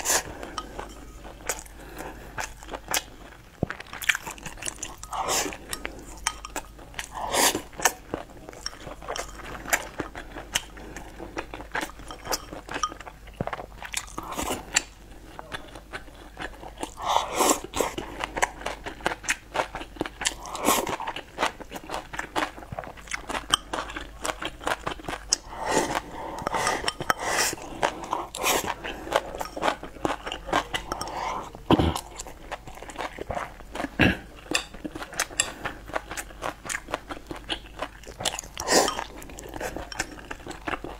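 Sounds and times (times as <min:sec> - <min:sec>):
slurping soup: 0:00.0 - 0:03.3, 0:03.9 - 0:12.9, 0:25.3 - 0:36.0, 0:38.4 - 0:40.9
person chewing: 0:00.0 - 0:40.9.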